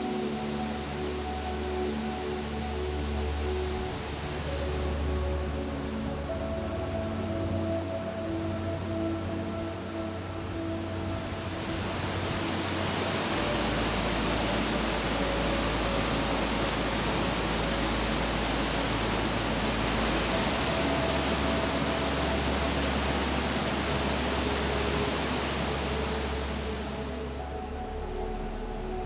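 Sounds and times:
soft sustained music: 0.0 - 29.0
waterfall roaring: 11.1 - 27.3.

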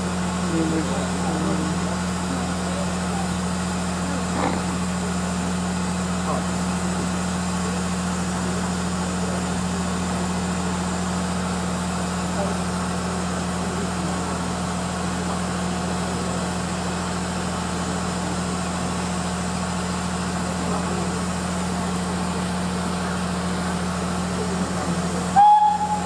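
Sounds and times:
steam train hum: 0.0 - 26.0
steam whistle blast: 25.3 - 26.0.

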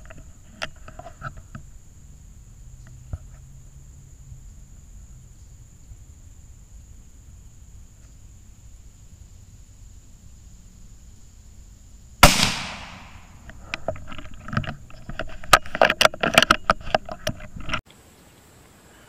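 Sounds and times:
rifle shot: 12.2 - 13.4
clicks and rustling: 13.4 - 17.8.

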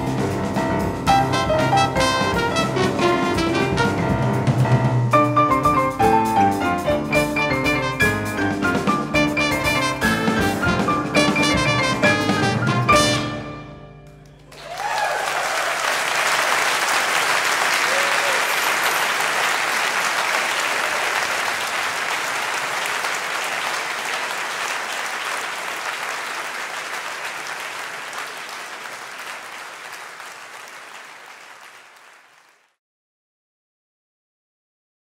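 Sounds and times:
audience applauding: 14.2 - 32.8.

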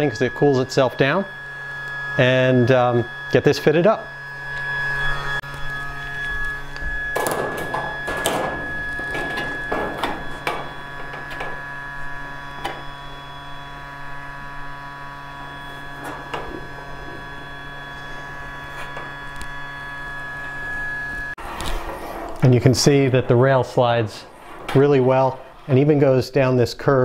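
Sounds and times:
heat gun fan humming: 0.0 - 26.2
metal rail scraping and clicking: 7.1 - 13.0, 15.8 - 18.1, 21.4 - 25.8.

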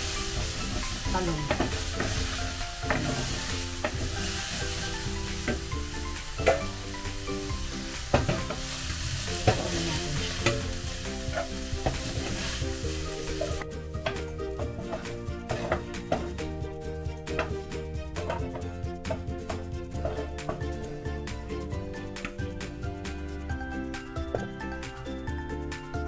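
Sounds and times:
vegetables sizzling in oil: 0.0 - 16.5
wooden spoon scraping a pan: 0.0 - 16.5, 17.2 - 20.8.

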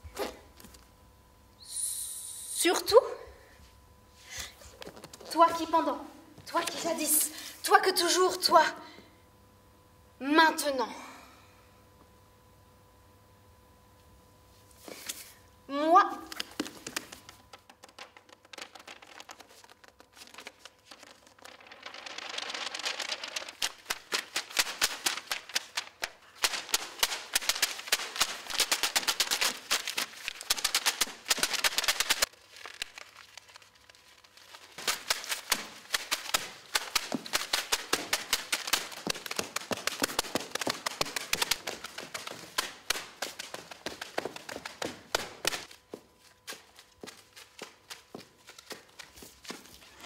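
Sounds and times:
paper crumpling: 16.3 - 45.7.

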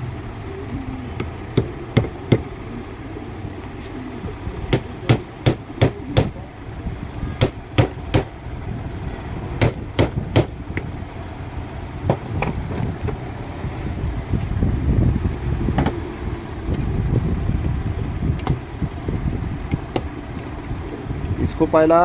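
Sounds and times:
hammer tapping on metal: 4.7 - 6.4, 7.4 - 8.3, 9.6 - 10.6.

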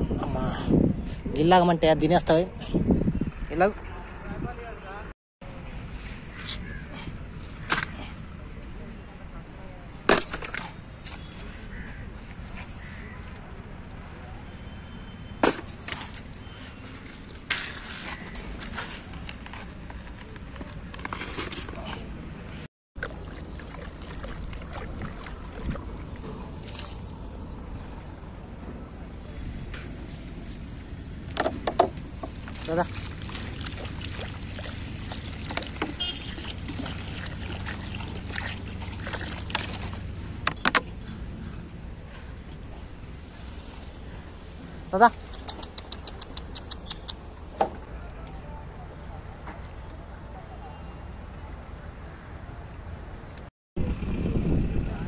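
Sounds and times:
water pouring and splashing: 23.0 - 27.2, 32.2 - 40.2.

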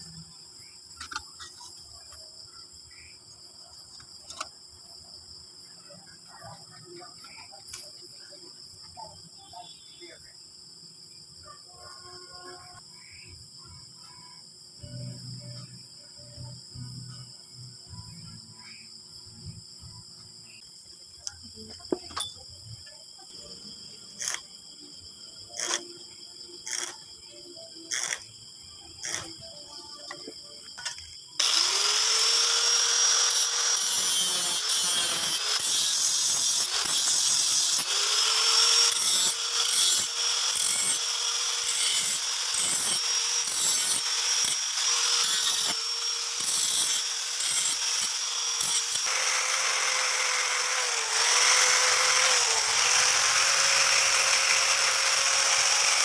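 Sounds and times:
angle grinder on steel: 24.2 - 24.5, 25.5 - 26.0, 26.6 - 27.0, 27.9 - 28.3, 29.0 - 29.4, 30.8 - 56.0.

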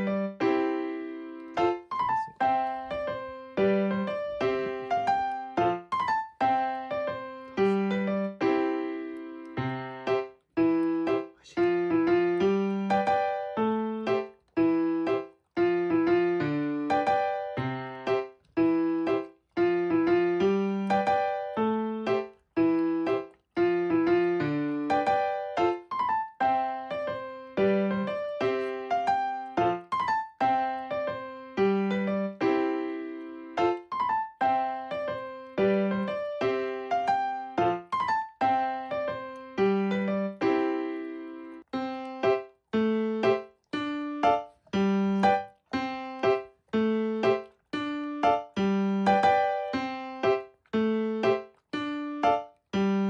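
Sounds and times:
piano melody: 0.0 - 53.0.

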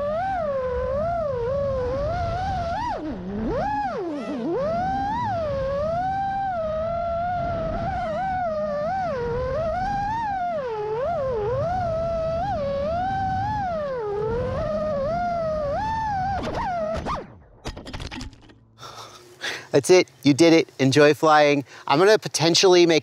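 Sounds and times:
drone motors whining: 0.0 - 19.3.

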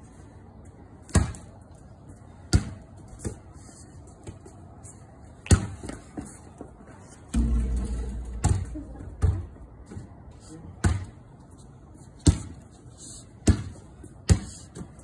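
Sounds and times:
basketball bouncing on concrete: 2.5 - 3.4, 5.4 - 6.3, 7.3 - 10.1, 10.8 - 11.2, 13.4 - 14.9.

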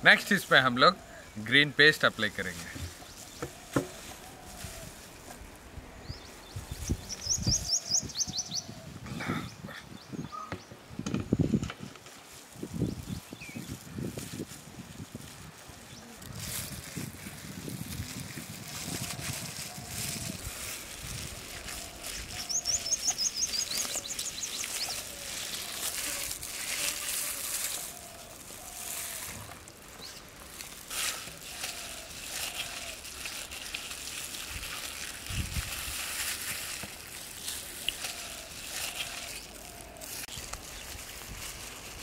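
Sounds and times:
birds calling: 0.0 - 5.3, 6.0 - 10.8, 21.1 - 26.4, 27.6 - 30.8, 37.0 - 41.0
hands squelching wet paste: 18.5 - 42.0.

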